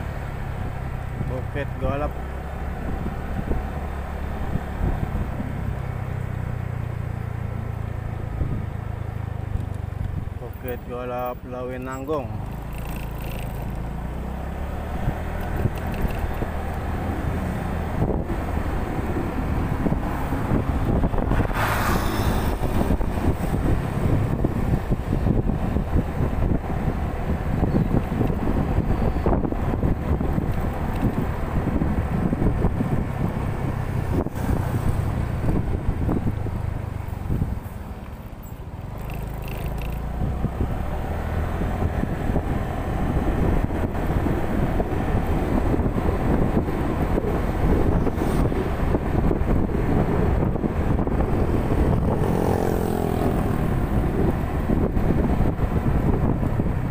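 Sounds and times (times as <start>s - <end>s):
motorcycle engine rumble: 0.0s - 56.9s
road noise: 0.0s - 56.9s
wind buffeting microphone: 0.6s - 10.6s, 13.6s - 39.3s, 40.0s - 56.9s.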